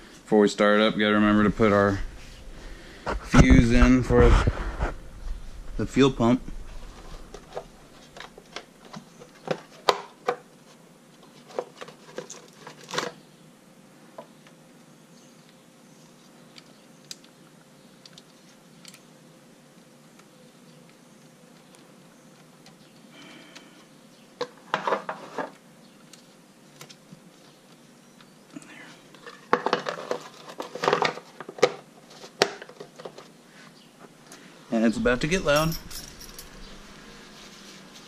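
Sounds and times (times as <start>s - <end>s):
small parts clicking and knocking: 16.5s - 17.4s, 18.0s - 19.1s.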